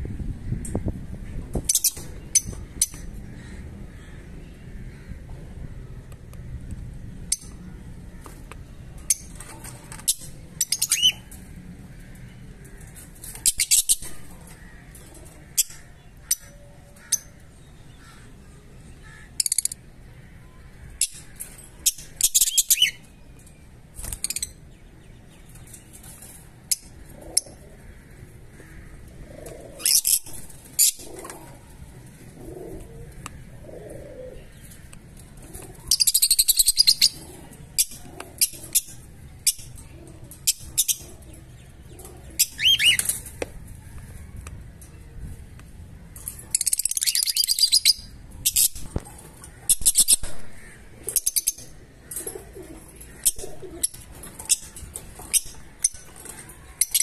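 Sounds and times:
lovebirds chirping: 33.1s - 43.5s.

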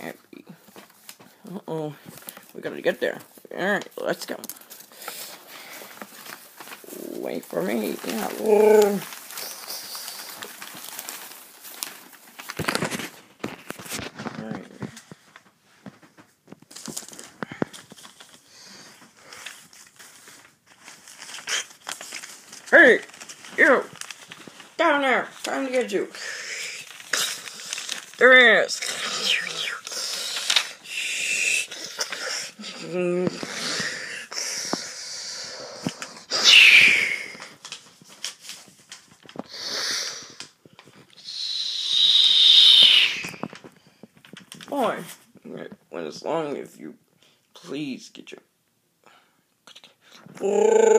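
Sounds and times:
paper rustling and crinkling: 0.0s - 31.0s, 31.6s - 41.4s, 43.2s - 45.8s
person making hissing mouth sounds: 28.8s - 37.4s, 39.5s - 40.4s, 41.2s - 43.4s, 49.7s - 50.9s.

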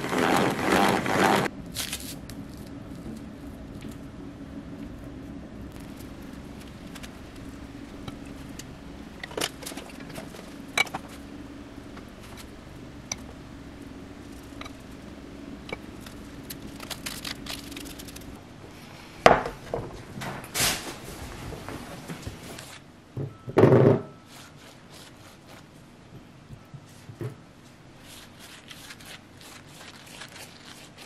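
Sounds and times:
low hum: 0.0s - 23.6s.

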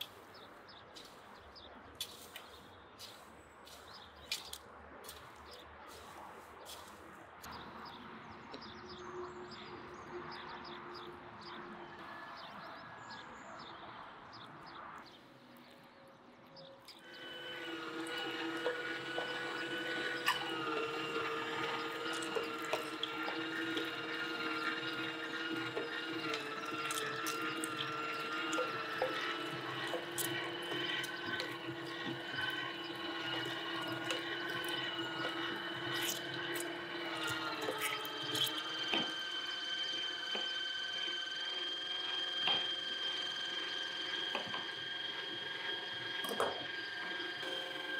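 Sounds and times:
electric meat grinder whining: 17.0s - 47.9s.

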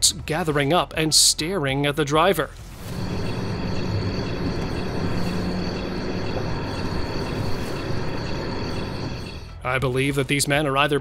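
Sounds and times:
low hum: 2.6s - 9.7s
car engine and road noise: 2.7s - 9.5s.

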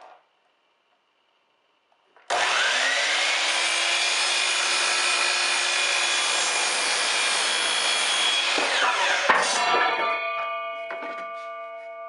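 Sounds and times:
miter saw motor whine: 2.3s - 6.2s
saw blade cutting wood: 2.3s - 10.2s.

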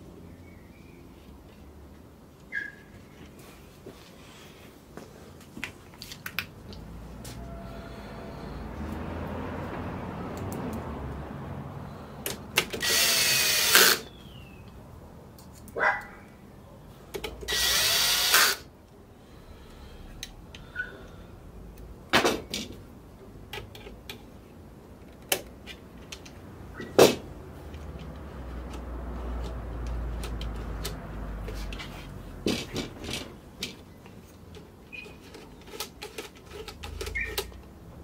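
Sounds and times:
cordless drill running: 12.8s - 14.1s, 17.5s - 18.6s
small metal parts clicking: 34.5s - 37.8s.

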